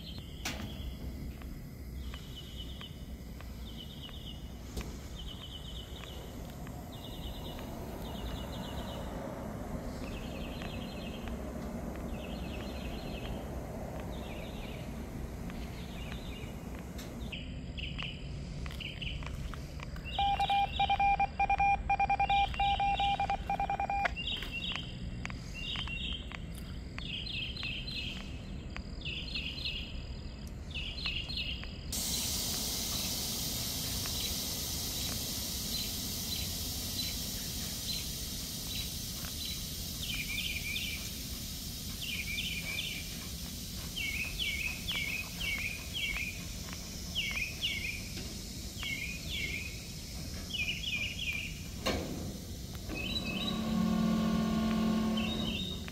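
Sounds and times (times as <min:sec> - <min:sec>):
steady hiss: 0:00.0 - 0:20.2, 0:31.7 - 0:55.9
high chirping calls: 0:00.0 - 0:26.4, 0:27.0 - 0:54.0, 0:54.6 - 0:55.9
low steady rumble: 0:00.0 - 0:31.0, 0:31.8 - 0:55.9
pulsing electronic beep: 0:20.2 - 0:24.1.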